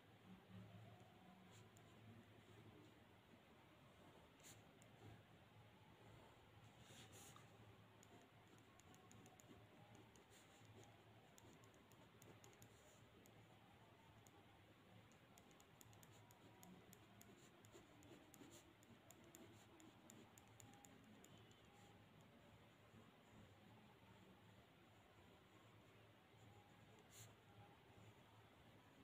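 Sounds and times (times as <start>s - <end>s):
pen scratching on paper: 6.0s - 13.5s, 15.2s - 22.1s.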